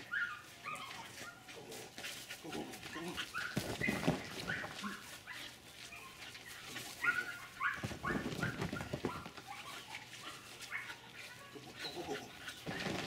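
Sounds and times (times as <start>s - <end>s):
dog yipping and whining: 0.0s - 1.5s, 2.9s - 13.0s.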